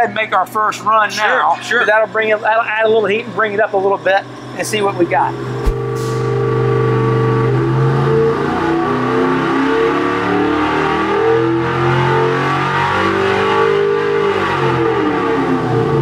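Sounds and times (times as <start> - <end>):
engine running under load: 1.2 - 13.2.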